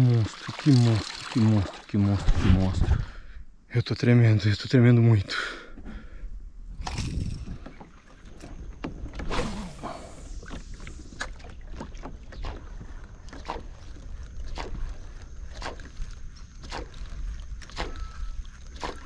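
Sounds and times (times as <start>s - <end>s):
wash of water: 0.0s - 2.9s
water splashing against kayak hull: 6.8s - 19.0s.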